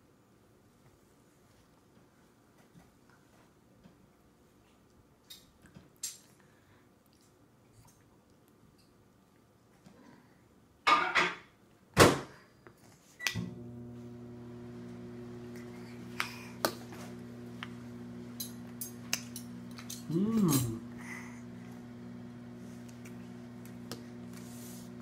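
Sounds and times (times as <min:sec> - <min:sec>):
microwave oven humming: 0:13.3 - 0:25.0.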